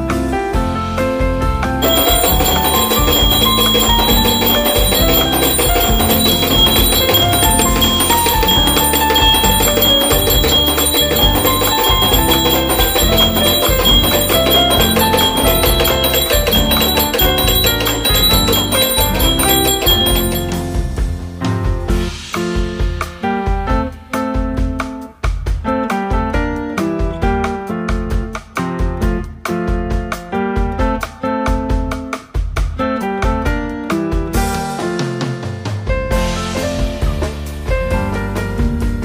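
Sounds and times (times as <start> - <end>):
music with a steady beat: 1.8 - 26.6.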